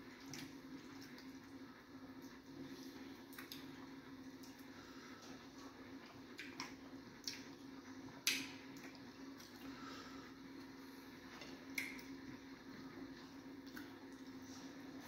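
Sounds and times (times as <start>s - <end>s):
steady low hum: 0.0s - 15.0s
wet chewing squishes and smacks: 0.1s - 1.6s, 2.2s - 9.8s, 11.3s - 12.2s, 13.2s - 15.0s.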